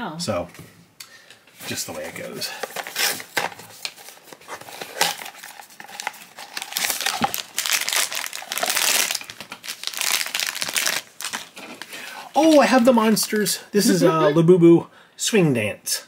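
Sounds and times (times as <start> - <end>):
foil bag crinkling and tearing: 2.5 - 13.5.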